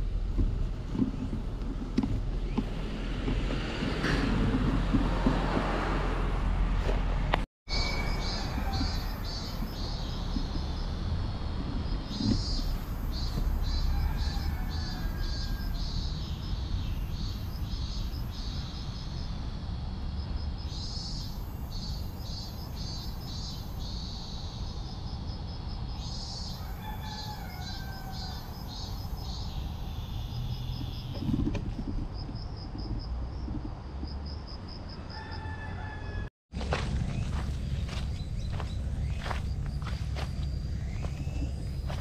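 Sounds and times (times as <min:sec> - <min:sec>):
steady low rumble: 0:36.6 - 0:42.0.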